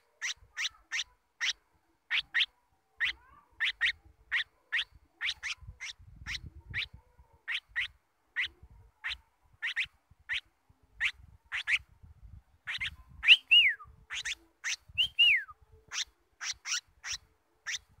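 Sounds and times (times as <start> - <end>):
bird calling: 0.0 - 4.0.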